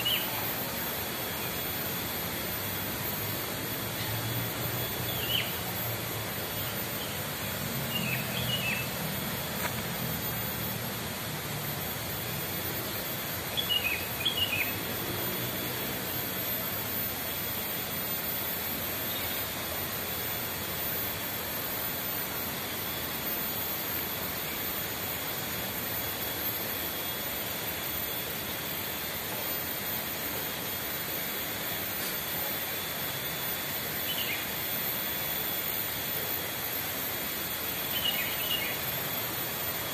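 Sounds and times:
small bird chirping: 0:00.0 - 0:00.4, 0:04.8 - 0:05.7, 0:06.6 - 0:09.0, 0:13.5 - 0:14.8, 0:34.0 - 0:34.5, 0:37.8 - 0:38.9
outdoor rushing ambience: 0:00.0 - 0:39.9.

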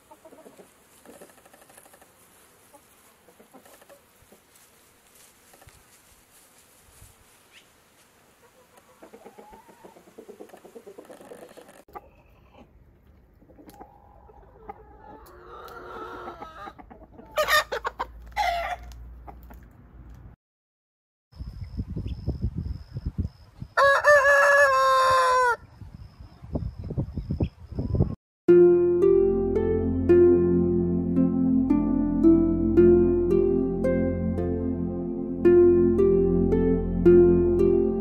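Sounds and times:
chickens clucking: 0:00.0 - 0:04.6, 0:08.4 - 0:19.7
rooster crowing: 0:23.8 - 0:25.6.

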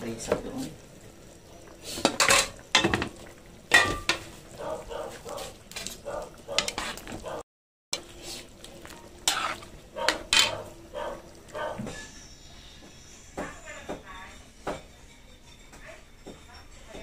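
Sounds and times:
pot lid clanking on metal pot: 0:02.0 - 0:04.3, 0:09.3 - 0:10.7
utensil stirring thick stew: 0:04.0 - 0:07.4, 0:08.0 - 0:12.2.

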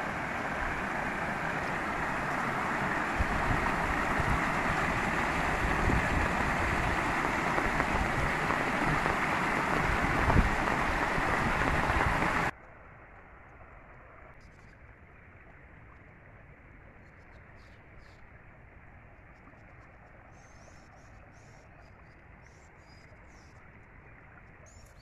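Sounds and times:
floodwater rushing: 0:00.0 - 0:12.5
water flowing over field: 0:00.0 - 0:25.0.

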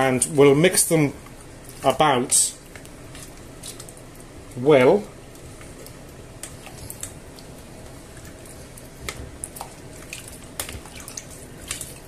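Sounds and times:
liquid sloshing and squelching: 0:06.4 - 0:12.0.

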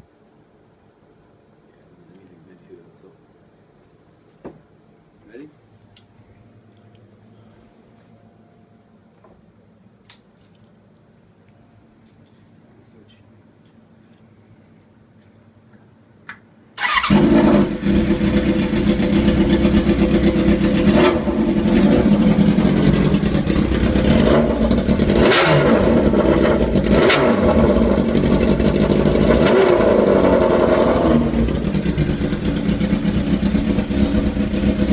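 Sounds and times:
motorcycle engine running loud: 0:17.0 - 0:34.9.

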